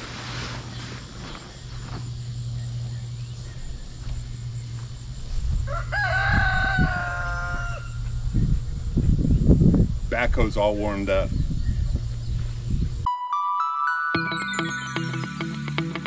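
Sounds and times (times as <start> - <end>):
rooster crowing: 5.6 - 8.1.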